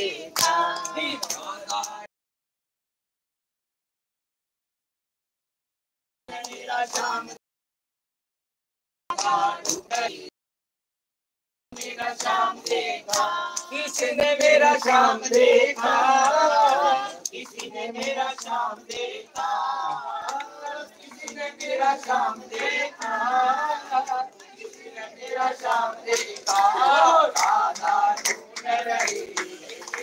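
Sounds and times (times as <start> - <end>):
voices singing a hymn together: 0.0 - 2.1, 6.3 - 7.4, 9.1 - 10.3, 11.8 - 30.0
hand clapping: 0.3 - 2.1, 6.3 - 7.4, 9.1 - 10.3, 11.8 - 30.0.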